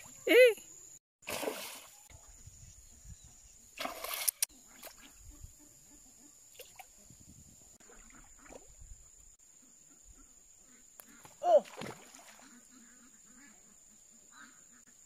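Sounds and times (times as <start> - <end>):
fish splashing at surface: 1.3 - 1.9.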